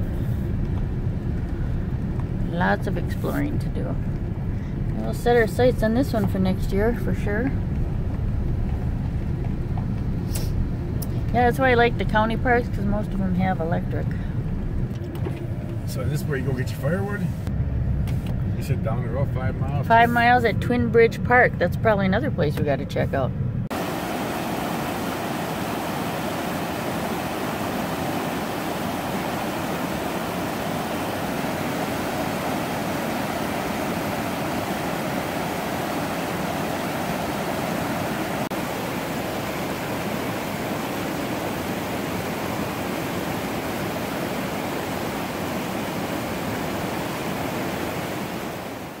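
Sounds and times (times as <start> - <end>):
river rapids rushing: 23.7 - 49.0.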